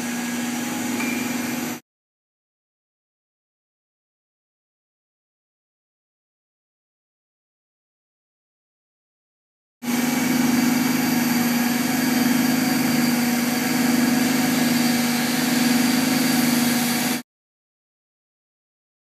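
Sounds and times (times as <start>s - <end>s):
centrifuge machine drone: 0.0s - 1.8s, 9.9s - 17.2s.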